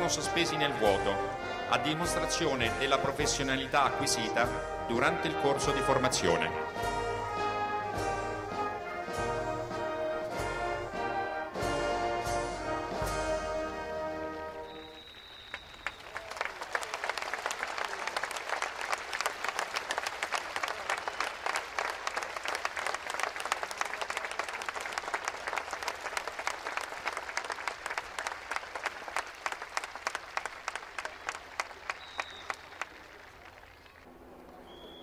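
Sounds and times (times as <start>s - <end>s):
audience applauding: 14.7s - 35.0s.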